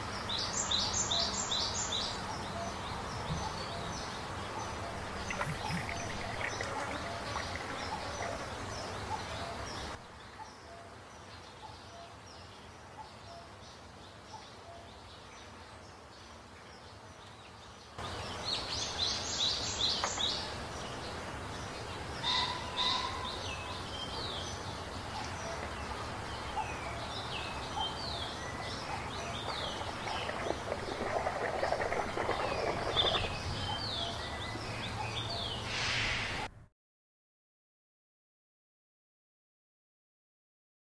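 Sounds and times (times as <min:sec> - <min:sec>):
small birds chirping: 0:00.2 - 0:13.4, 0:14.1 - 0:35.8
water sloshing in a plastic tub: 0:04.9 - 0:08.9, 0:29.0 - 0:34.0.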